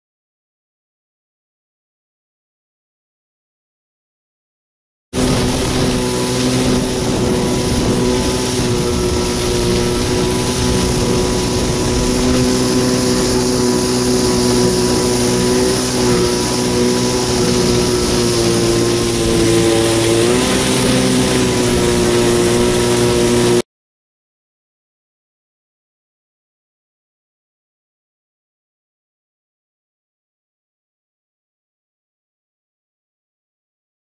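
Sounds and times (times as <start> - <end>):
jet ski engine running: 5.2 - 23.6
wind and water hiss: 5.2 - 23.6.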